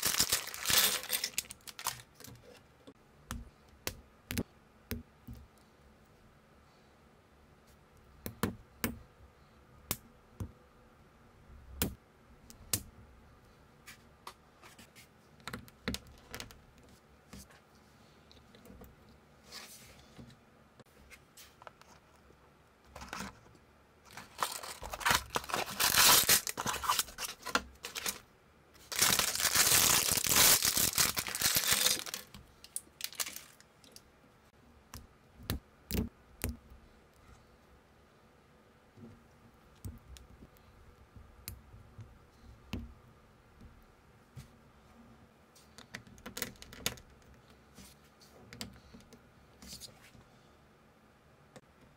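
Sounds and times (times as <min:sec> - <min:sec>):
packaging tearing and crinkling: 0:00.0 - 0:02.3, 0:24.1 - 0:28.2, 0:28.8 - 0:33.6.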